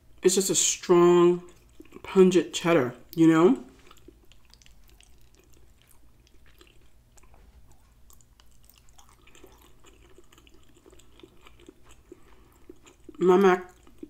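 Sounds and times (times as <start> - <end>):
person chewing food: 1.4 - 2.1, 3.0 - 14.0
wet mouth clicks: 3.9 - 14.0.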